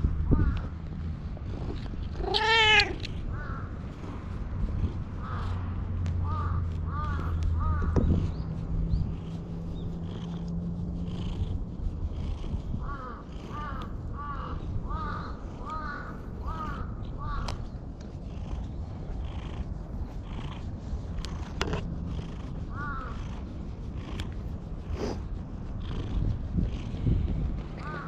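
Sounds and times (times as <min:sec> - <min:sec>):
crow cawing: 0:03.4 - 0:03.7, 0:05.2 - 0:05.5, 0:06.2 - 0:07.9, 0:12.9 - 0:17.5, 0:22.8 - 0:23.1, 0:27.8 - 0:28.0
cat purring: 0:08.2 - 0:14.0, 0:18.0 - 0:27.8.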